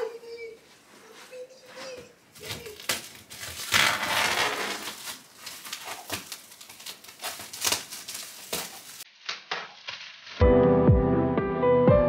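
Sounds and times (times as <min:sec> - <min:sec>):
plastic wrap crinkling and tearing: 0:02.3 - 0:10.4.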